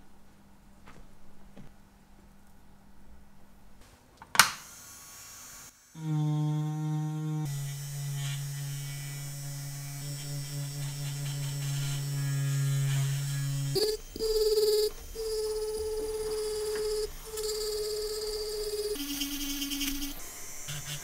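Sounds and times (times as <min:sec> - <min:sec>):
rotary tool humming and whining: 0:04.7 - 0:21.0.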